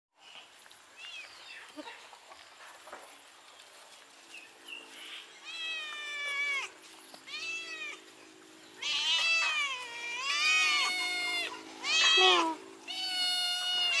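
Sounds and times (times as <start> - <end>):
cats meowing: 5.1 - 8.1, 8.8 - 14.0.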